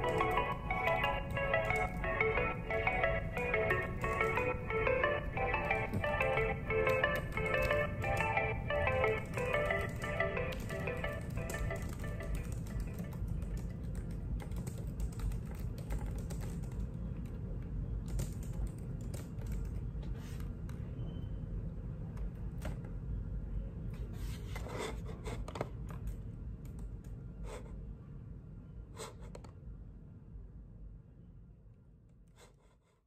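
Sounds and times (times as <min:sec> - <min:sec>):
laptop keyboard typing: 0:00.0 - 0:17.4, 0:18.0 - 0:20.8
low steady hum: 0:00.0 - 0:33.0.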